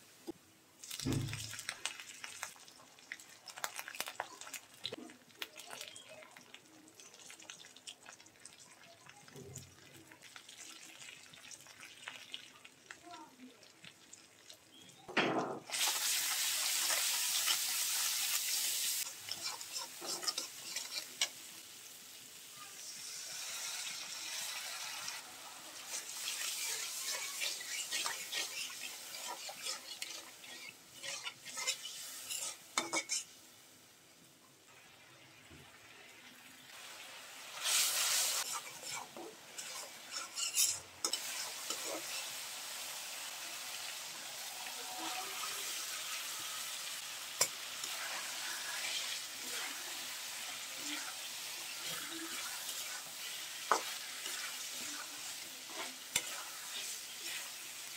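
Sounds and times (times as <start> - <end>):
onion sizzling in hot oil: 0.0 - 57.9
metal spatula scraping pan: 19.3 - 21.4, 25.8 - 33.3, 37.6 - 42.4, 50.9 - 57.9.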